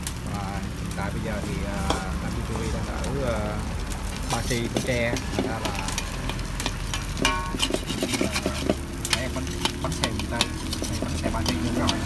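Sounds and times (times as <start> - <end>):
batter frying in fat: 0.0 - 12.0
metal spatula scraping pan: 1.5 - 2.8, 4.0 - 12.0.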